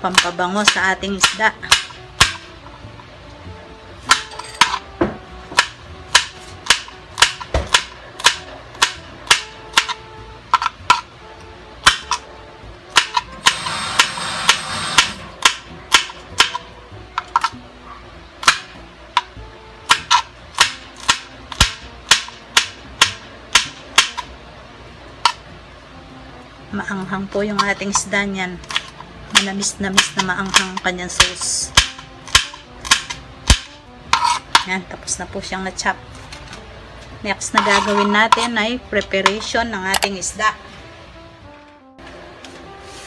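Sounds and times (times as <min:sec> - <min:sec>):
knife chopping on cutting board: 0:04.1 - 0:10.0, 0:12.9 - 0:17.5, 0:19.9 - 0:24.3, 0:28.6 - 0:34.7.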